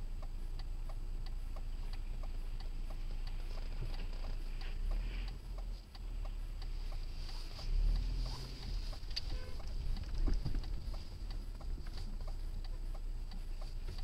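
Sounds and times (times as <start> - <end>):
engine and road rumble: 0.0 - 14.0
faint regular ticking: 0.0 - 14.0.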